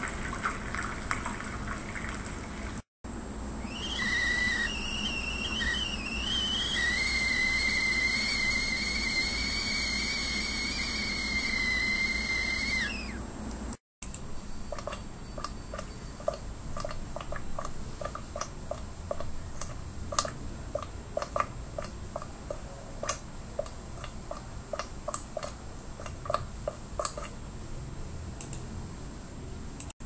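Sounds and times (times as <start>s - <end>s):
thick porridge bubbling plops: 0.0s - 2.8s, 14.7s - 27.4s.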